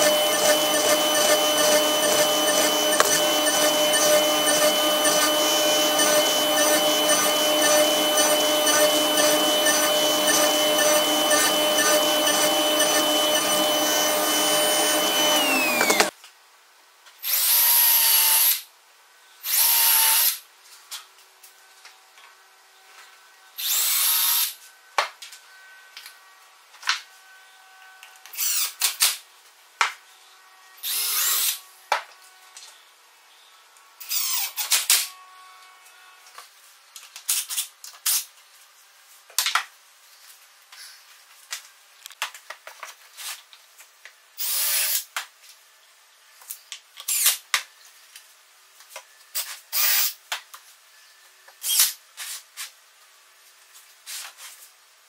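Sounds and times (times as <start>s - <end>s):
cordless drill drilling wood: 0.0s - 16.1s, 19.5s - 20.4s, 23.6s - 24.5s, 28.3s - 28.8s, 30.8s - 31.6s, 34.0s - 34.8s.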